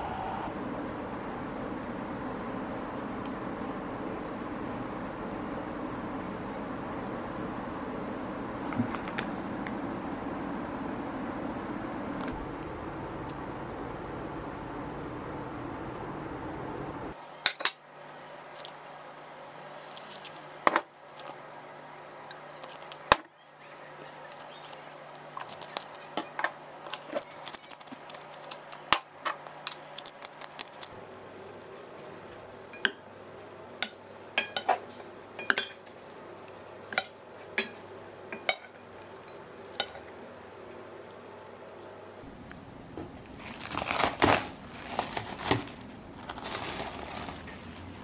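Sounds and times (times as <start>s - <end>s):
utensils clinking in metal bowl: 33.8s - 36.0s, 36.9s - 40.2s.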